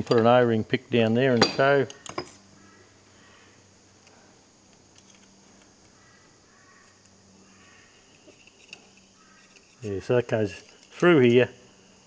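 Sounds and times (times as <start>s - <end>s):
light clicks of metal parts: 4.0s - 6.0s, 8.1s - 11.4s.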